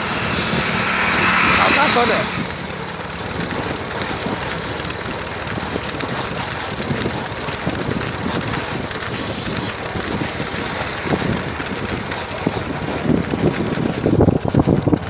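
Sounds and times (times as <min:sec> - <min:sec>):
high-pitched squeal: 0:00.0 - 0:02.7, 0:04.0 - 0:04.9
road and vehicle noise: 0:00.0 - 0:15.0
wind buffeting microphone: 0:00.0 - 0:15.0.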